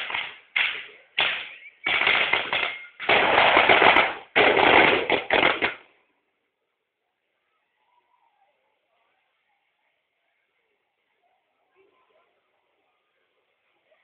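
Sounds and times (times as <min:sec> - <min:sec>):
firecrackers crackling: 0:00.0 - 0:06.1.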